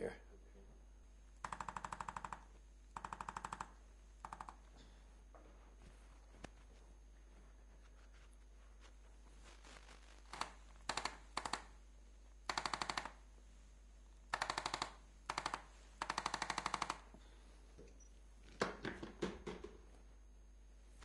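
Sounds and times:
electric instrument rapid clicks: 0:01.4 - 0:04.6, 0:10.4 - 0:11.7, 0:12.5 - 0:13.2, 0:14.3 - 0:17.1
knocks: 0:18.6 - 0:19.8.

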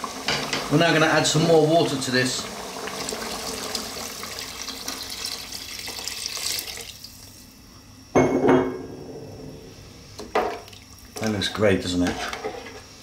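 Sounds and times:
water pouring into a pot: 0:00.0 - 0:07.4.

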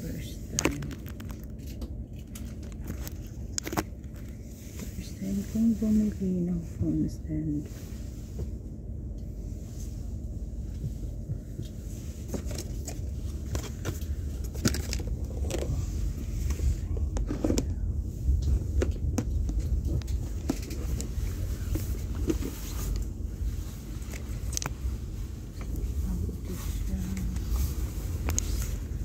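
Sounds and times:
train rumbling: 0:00.0 - 0:29.0
clicks and rattles: 0:00.6 - 0:04.3.

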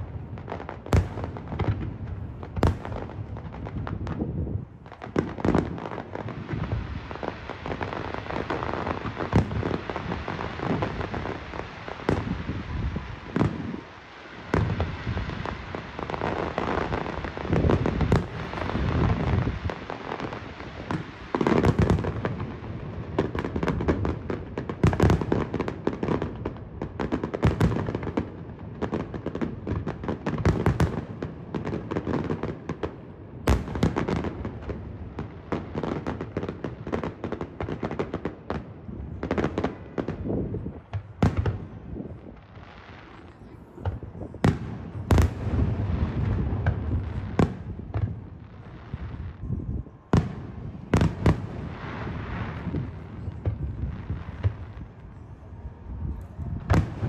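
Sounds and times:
fireworks popping and crackling: 0:00.0 - 0:57.0.

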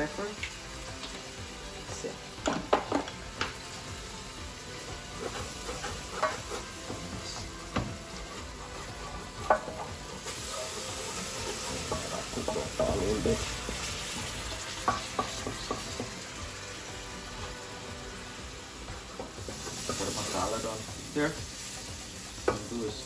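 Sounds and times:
curry sizzling: 0:00.0 - 0:23.0
wooden spoon scraping a pan: 0:05.1 - 0:07.4, 0:08.0 - 0:14.2
spoon knocking against pan: 0:06.1 - 0:07.0, 0:09.4 - 0:10.0, 0:11.7 - 0:13.8, 0:14.8 - 0:16.2.

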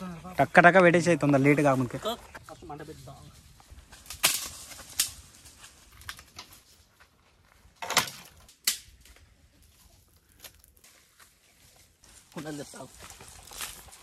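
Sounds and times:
blade chopping dry branches: 0:03.8 - 0:05.4, 0:07.8 - 0:09.2.

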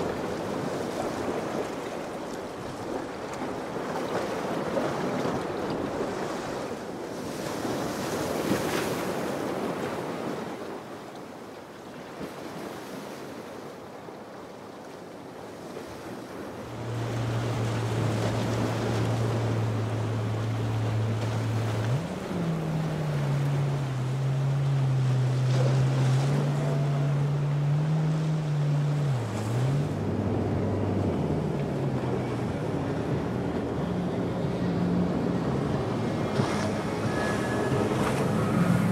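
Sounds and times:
surf washing: 0:00.0 - 0:38.9
low steady hum: 0:16.6 - 0:38.9.

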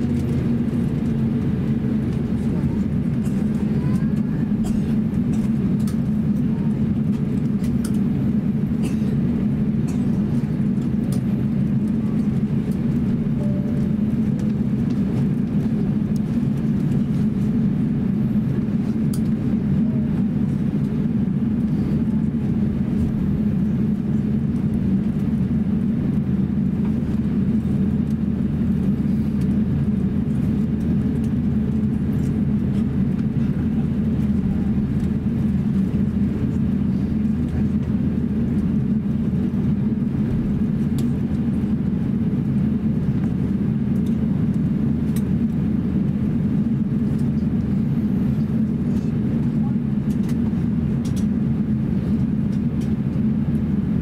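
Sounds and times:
aircraft cabin rumble while taxiing: 0:00.0 - 0:54.0.

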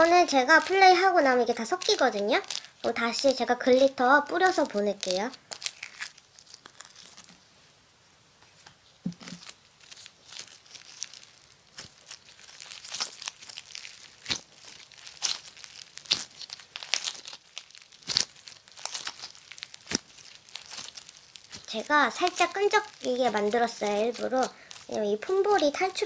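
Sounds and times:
slime crackling and popping: 0:00.0 - 0:07.4, 0:09.1 - 0:26.0
soft thud: 0:09.0 - 0:09.4.

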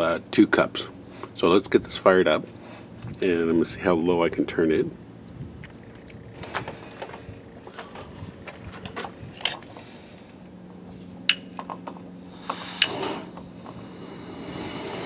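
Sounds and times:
gas burner whoosh and hiss: 0:12.2 - 0:15.0
lighter clicks: 0:12.4 - 0:13.3.

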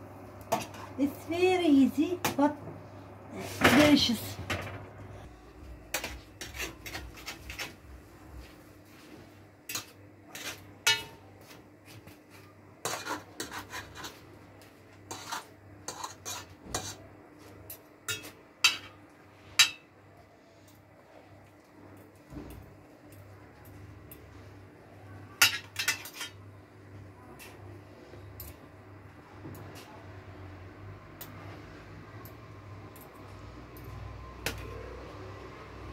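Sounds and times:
metal spoon scraping a frying pan: 0:06.0 - 0:07.8, 0:09.7 - 0:11.2, 0:12.8 - 0:14.3, 0:15.1 - 0:17.1, 0:25.4 - 0:26.4.

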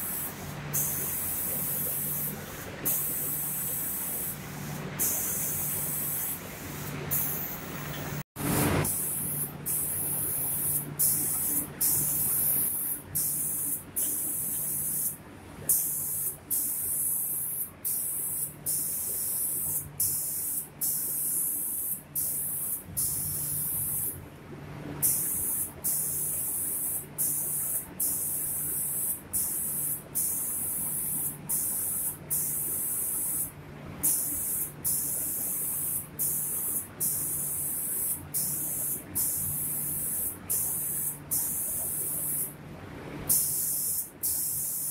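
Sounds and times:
spray gun hissing: 0:00.0 - 0:24.2, 0:25.0 - 0:42.5, 0:43.3 - 0:44.9
low machine hum: 0:22.9 - 0:25.4, 0:42.5 - 0:43.3.

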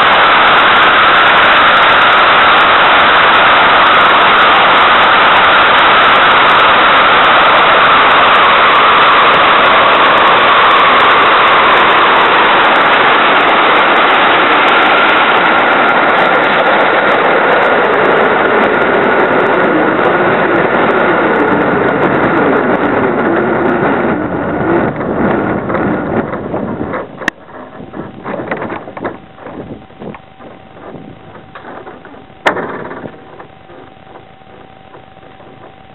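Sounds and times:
airflow rushing: 0:00.0 - 0:21.8.

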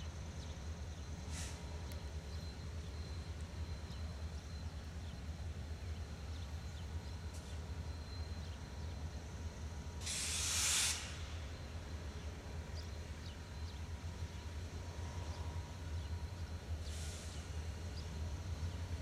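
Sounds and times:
diesel locomotive rumble: 0:00.0 - 0:19.0
compressed-air hiss: 0:10.0 - 0:11.3.

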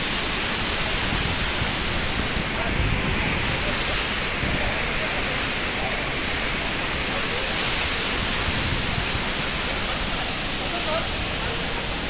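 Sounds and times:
waterfall roaring: 0:00.0 - 0:12.0
wind buffeting microphone: 0:00.6 - 0:05.3, 0:08.0 - 0:10.1.

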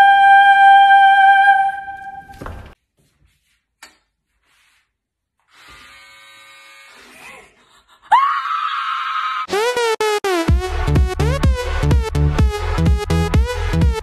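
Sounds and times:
hair clippers buzzing: 0:05.5 - 0:07.4
woman screaming: 0:08.0 - 0:09.5.

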